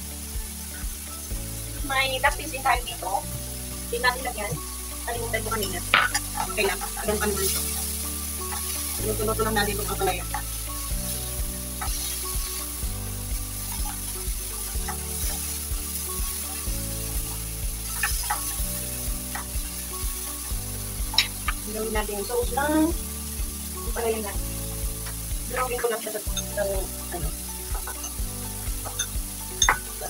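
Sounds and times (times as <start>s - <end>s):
vegetables sizzling in a frying pan: 0.0s - 30.0s
chopsticks clicking and scraping pan: 5.4s - 10.7s, 11.7s - 12.6s, 17.9s - 18.6s, 19.3s - 19.8s, 21.1s - 21.7s, 27.6s - 28.2s.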